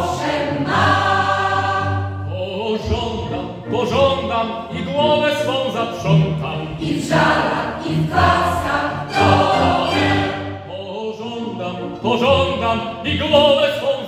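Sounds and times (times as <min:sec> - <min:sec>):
mixed choir singing: 0:00.0 - 0:02.9, 0:06.6 - 0:10.8
violins playing: 0:00.0 - 0:13.3.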